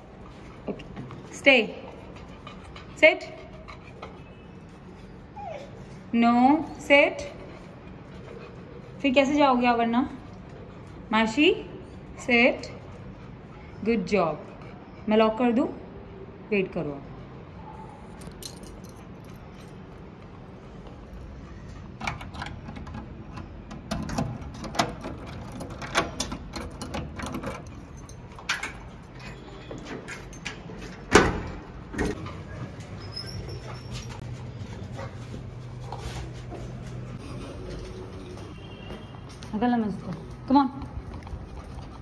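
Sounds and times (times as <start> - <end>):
keys jangling: 18.2 - 20.0, 24.0 - 31.2
door shut and locked with key: 22.0 - 32.2.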